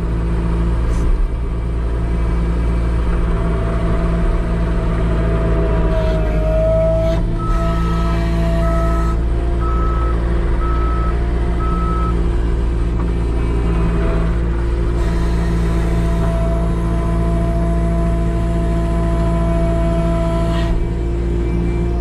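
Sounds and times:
skid steer engine running: 0.0 - 22.0
reversing alarm beeps: 8.6 - 12.2.

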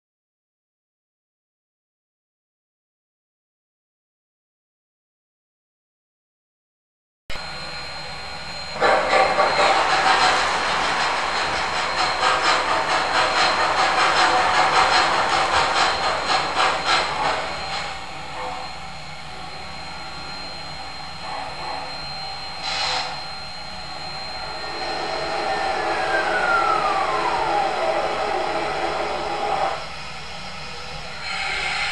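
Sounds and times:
model steam locomotive chuffing: 7.4 - 31.9.

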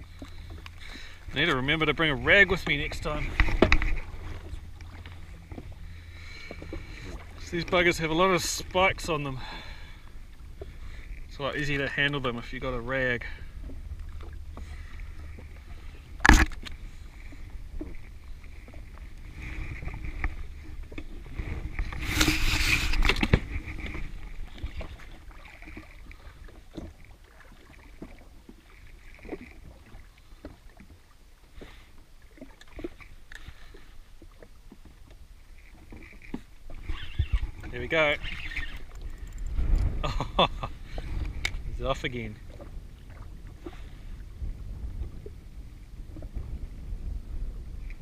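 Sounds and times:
small waves lapping against a hull: 0.0 - 48.0
clicks and knocks from gear: 3.3 - 4.0, 16.2 - 16.8.

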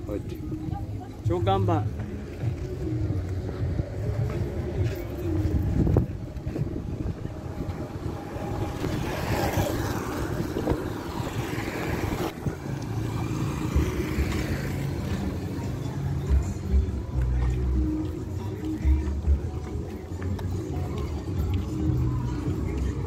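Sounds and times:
motorcycle traffic: 0.0 - 23.0
wind rushing over microphone: 3.4 - 15.0.

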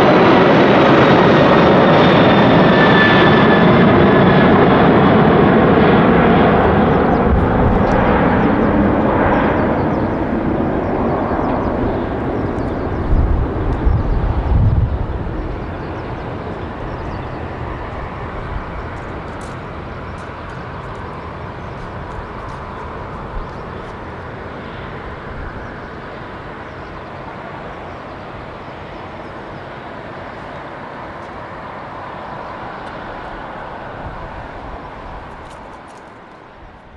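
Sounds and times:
jet engines roaring: 0.0 - 36.9.

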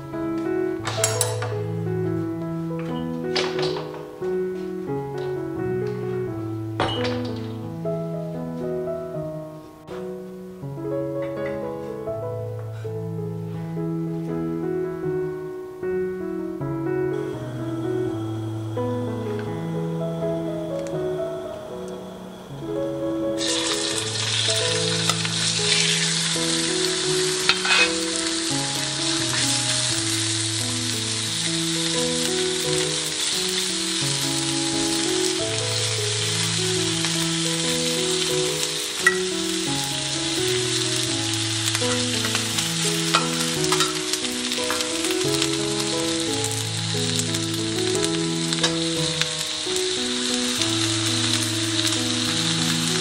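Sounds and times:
light background music: 0.0 - 53.0
chicken sizzling in hot oil: 22.6 - 53.0.

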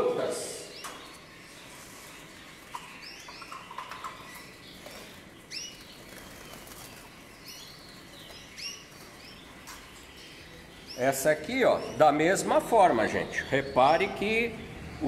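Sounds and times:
canaries chirping: 0.0 - 15.0
wings fluttering: 1.8 - 9.9.

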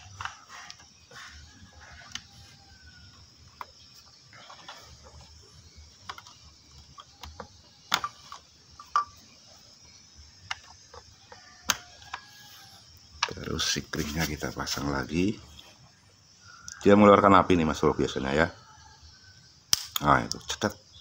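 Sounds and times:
wires rustling: 0.0 - 9.0, 10.5 - 14.9
plastic connectors snapping: 19.7 - 20.4.

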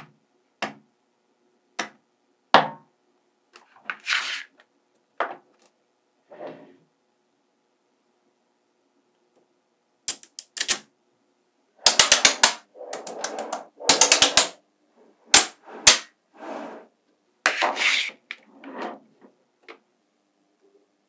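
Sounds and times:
magnetic balls snapping together: 10.1 - 10.9, 11.9 - 14.6.

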